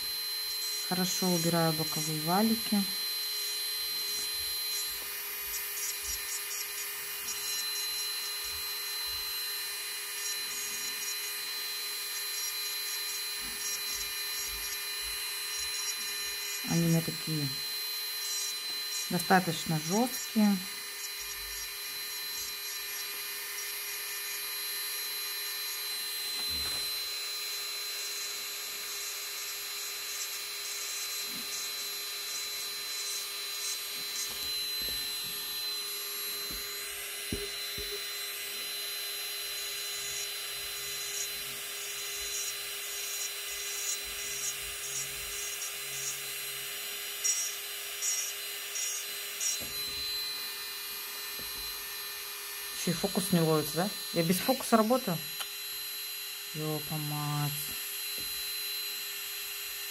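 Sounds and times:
dust collector fan humming: 0.0 - 9.3, 12.0 - 23.6, 33.8 - 38.7, 49.5 - 58.4
electric manicure drill whining: 0.0 - 59.9
drill bit rubbing on skin: 0.4 - 27.1, 27.9 - 46.4, 47.1 - 55.8.

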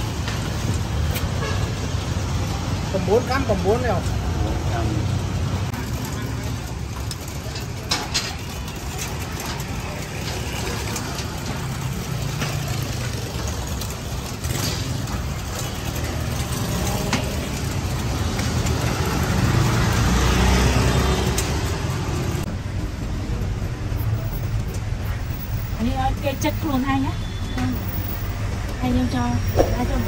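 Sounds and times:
street traffic noise: 0.0 - 30.0
motor vehicle passing: 10.6 - 22.5.

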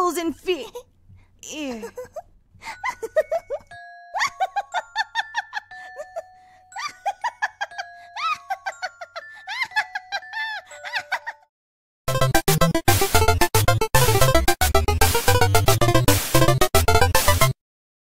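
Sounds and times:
cartoon character giggling: 1.7 - 11.5
background music: 12.1 - 17.6.

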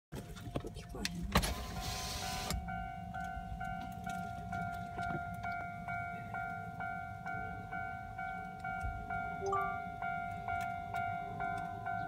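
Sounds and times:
level crossing warning bell: 1.7 - 12.0.

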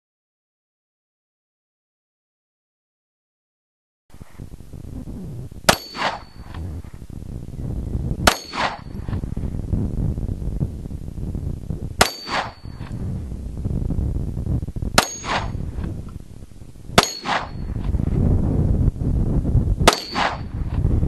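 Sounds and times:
steel target clanging: 5.7 - 6.6, 8.3 - 9.0, 12.0 - 13.0, 15.0 - 15.6, 17.0 - 17.8, 19.9 - 20.5
handgun shots: 12.0 - 12.6, 15.0 - 15.6, 17.0 - 17.6, 19.9 - 20.5.

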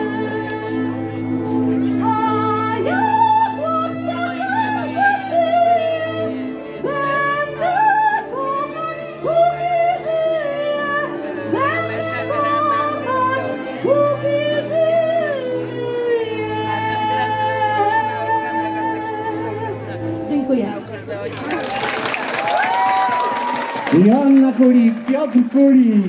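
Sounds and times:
woman singing folk melody: 0.0 - 20.7.

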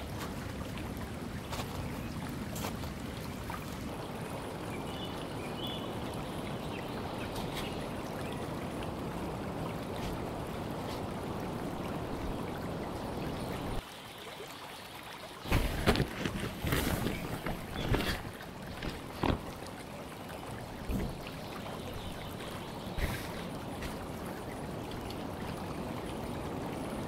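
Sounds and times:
river rushing: 2.4 - 13.9
blanket rustling: 15.5 - 19.4.

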